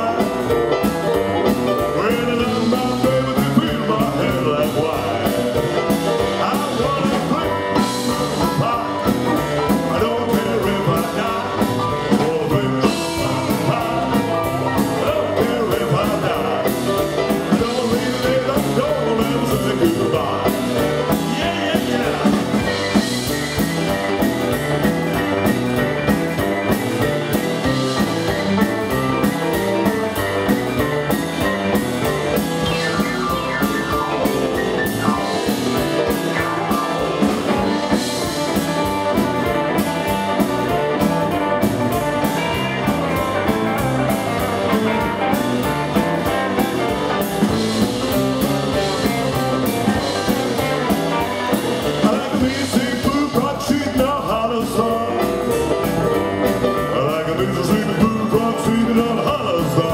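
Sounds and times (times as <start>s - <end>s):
rock and roll band playing: 0.0s - 59.9s.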